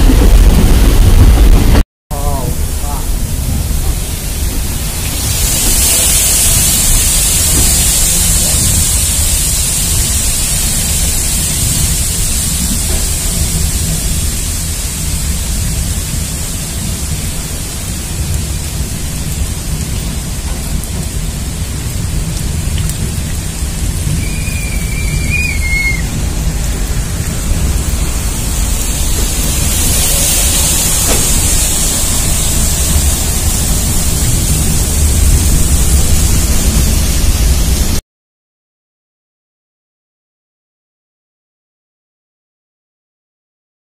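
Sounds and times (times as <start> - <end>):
rain and waterfalls rushing: 0.0 - 38.0
train rumbling: 0.0 - 38.0
high wavering whistle: 24.2 - 26.1.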